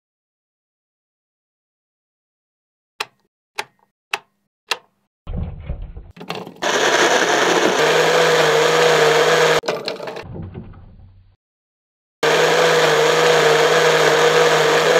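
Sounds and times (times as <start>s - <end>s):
sharp clicks: 3.0s - 4.9s
blender motor blending fruit: 6.6s - 10.2s, 12.2s - 14.9s.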